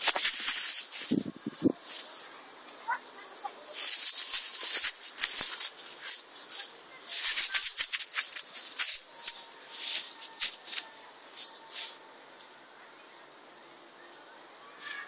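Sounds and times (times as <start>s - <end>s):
shrubs rustling: 0.0s - 15.0s.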